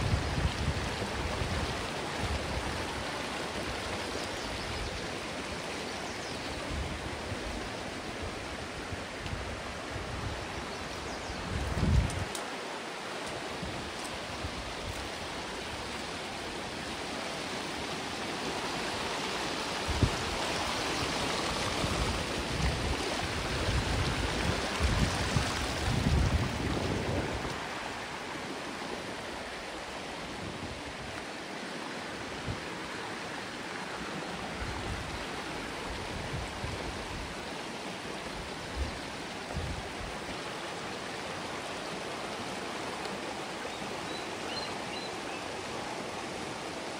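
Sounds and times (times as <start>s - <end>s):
wind rumble on microphone: 0.0s - 3.1s, 6.6s - 12.4s, 19.8s - 28.1s, 34.5s - 37.4s, 38.6s - 40.2s
creek water rushing: 0.0s - 46.9s.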